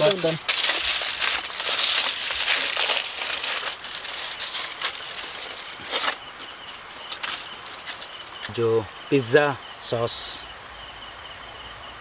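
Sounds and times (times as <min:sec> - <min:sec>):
aluminium foil crinkling: 0:00.0 - 0:08.6.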